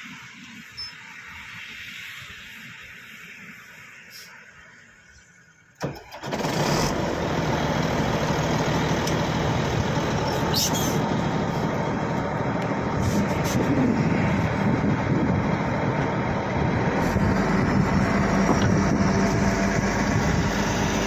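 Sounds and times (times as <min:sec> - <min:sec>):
heavy diesel engine running: 0:05.8 - 0:21.0.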